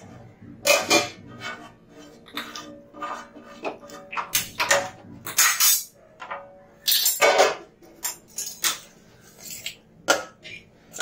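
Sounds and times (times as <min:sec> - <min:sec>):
metal plate scraping bowl rim: 0:00.0 - 0:04.9.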